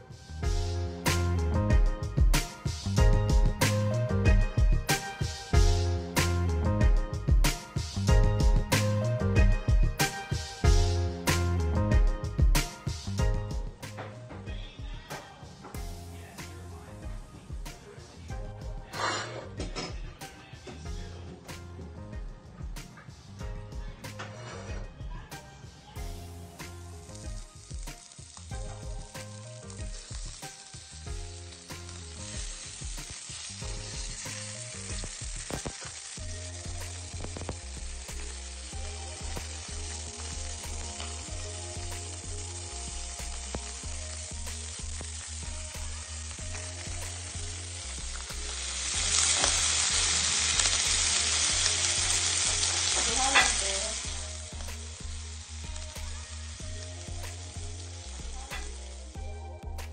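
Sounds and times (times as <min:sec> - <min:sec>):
fish sizzling in hot oil: 0:00.1 - 0:13.9, 0:26.0 - 0:59.3.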